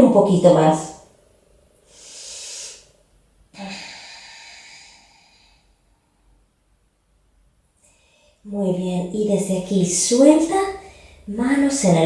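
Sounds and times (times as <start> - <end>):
woman breathing slowly: 1.8 - 6.5, 7.8 - 8.5, 10.8 - 11.3.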